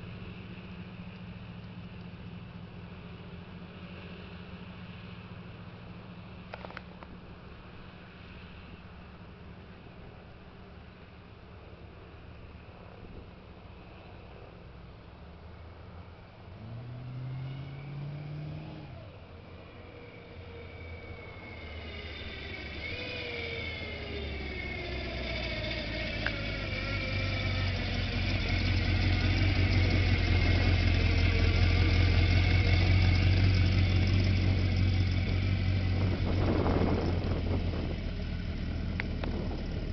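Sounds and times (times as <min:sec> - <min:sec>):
car engine passing by: 0:11.8 - 0:39.9.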